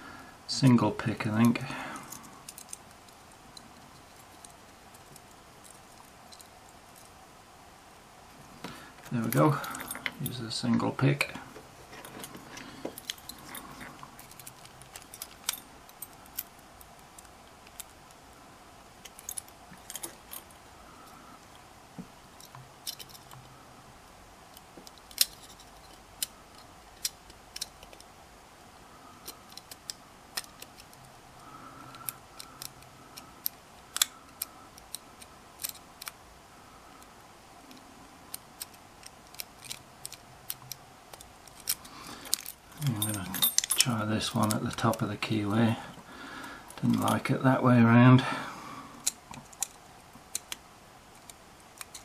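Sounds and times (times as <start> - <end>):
lock pick clicking and scraping: 1.4 - 7.2, 11.9 - 18.2, 19.0 - 21.2, 22.4 - 23.6, 24.5 - 28.2, 29.2 - 36.2, 37.0 - 45.1, 48.9 - 52.0.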